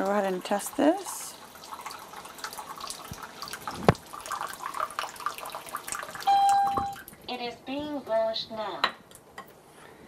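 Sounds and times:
water splashing into a glass: 1.6s - 7.1s.

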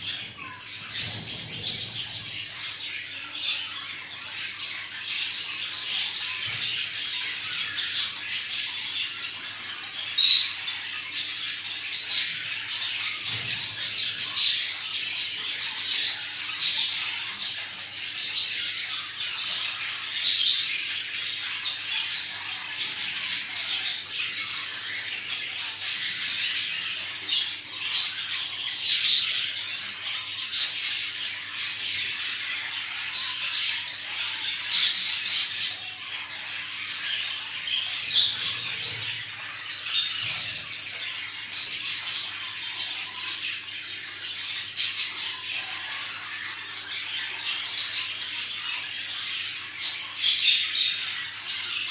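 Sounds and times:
budgerigars chattering and calling: 0.0s - 51.9s
sharp loud bird calls: 0.0s - 51.9s.

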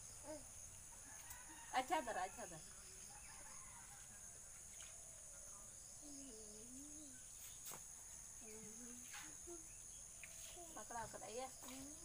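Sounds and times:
crickets chirring: 0.0s - 12.0s
soft low murmurs: 2.6s - 7.4s.

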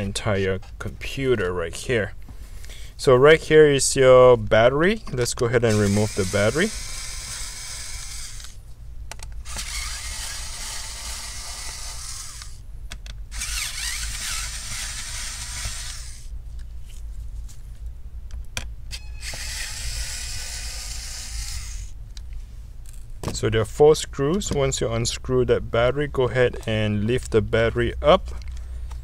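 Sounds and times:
electric screwdriver motor whine: 5.7s - 8.6s, 9.4s - 12.6s, 13.3s - 16.3s, 19.0s - 21.9s.

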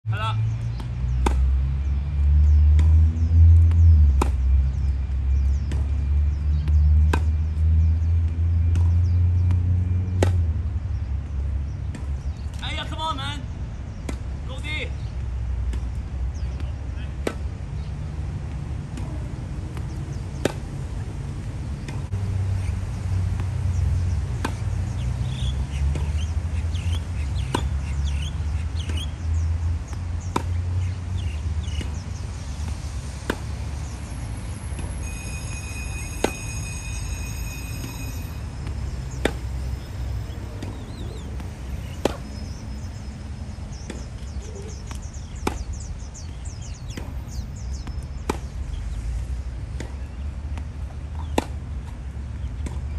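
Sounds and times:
birds chirping: 0.1s - 52.9s
racket hitting tennis ball: 0.7s - 1.5s, 2.6s - 4.4s, 6.6s - 7.5s, 8.7s - 10.6s, 15.6s - 22.2s, 23.3s - 27.9s, 28.9s - 30.9s, 31.6s - 33.9s, 38.6s - 48.8s, 49.6s - 52.9s.

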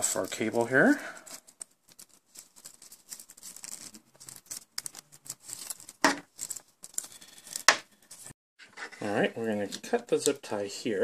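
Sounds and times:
cable rustling and clicking: 0.0s - 8.3s.

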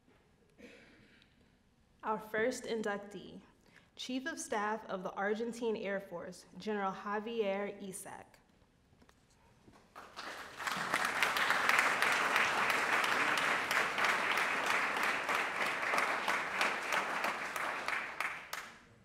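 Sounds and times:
audience applauding: 9.9s - 18.8s.

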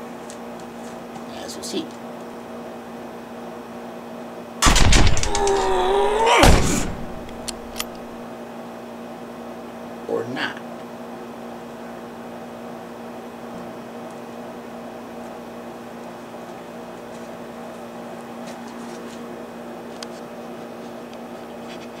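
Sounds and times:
machine humming: 4.6s - 8.2s.

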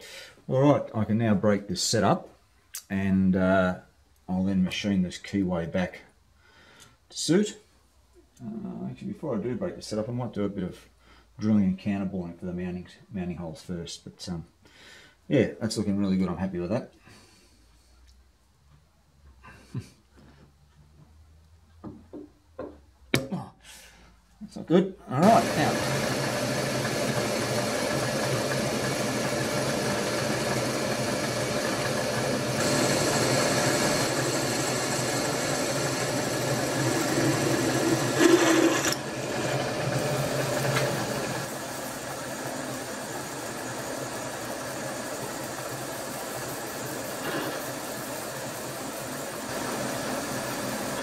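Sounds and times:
milling machine drilling metal: 25.2s - 48.0s, 49.4s - 51.0s.

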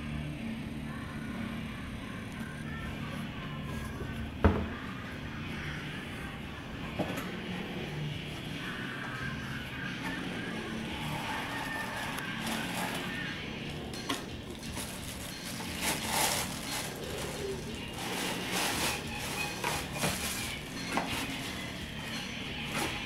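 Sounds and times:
tissue paper crinkling: 11.2s - 13.3s, 14.5s - 22.1s.

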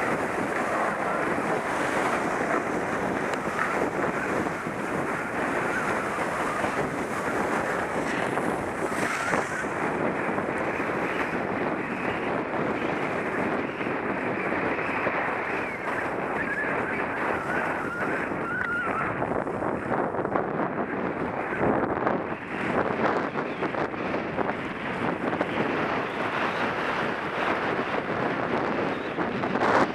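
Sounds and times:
skis scraping on packed snow: 0.0s - 18.2s
wind rushing over microphone: 0.0s - 29.9s.

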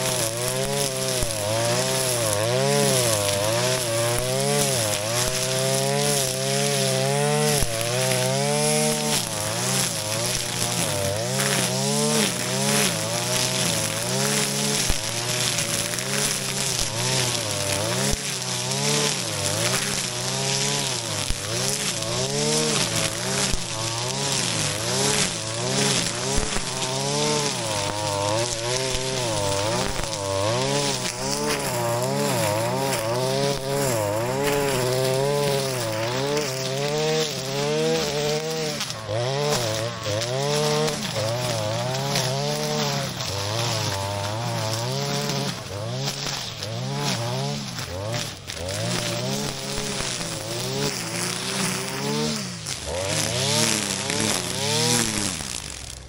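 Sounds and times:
brush cutter engine: 0.0s - 56.0s
grass being cut: 0.0s - 56.0s.

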